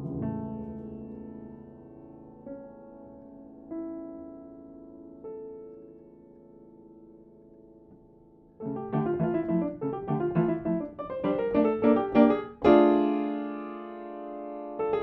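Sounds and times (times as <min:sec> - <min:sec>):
upright piano playing: 0:00.0 - 0:15.0.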